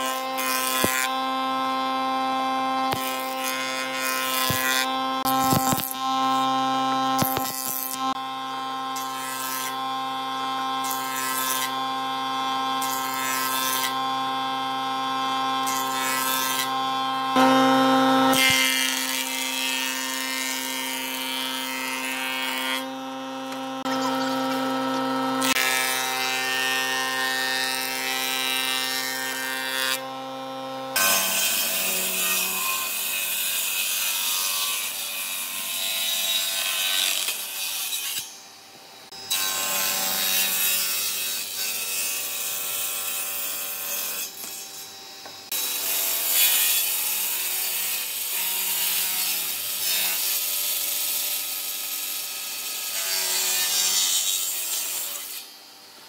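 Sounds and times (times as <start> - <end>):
thickness planer planing wood: 0.0 - 38.3
table saw cutting timber: 0.0 - 56.0.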